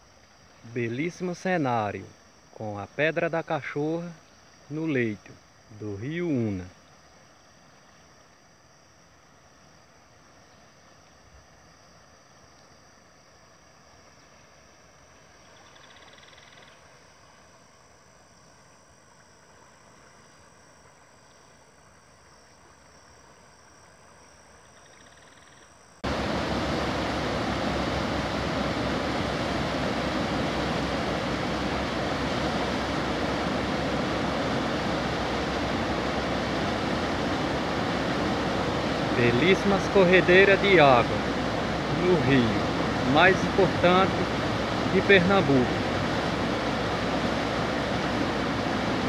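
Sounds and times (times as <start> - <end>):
river rushing through rapids: 26.0 - 49.0.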